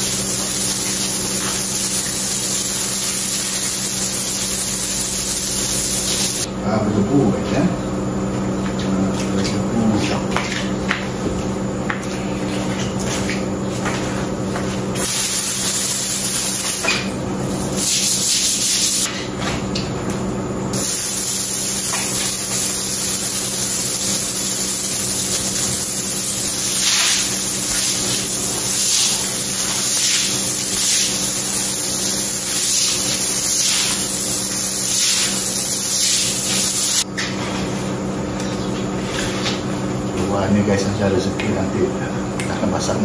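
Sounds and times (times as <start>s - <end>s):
hose spray on concrete: 0.0s - 6.5s, 15.0s - 17.0s, 17.6s - 19.1s, 20.8s - 37.1s.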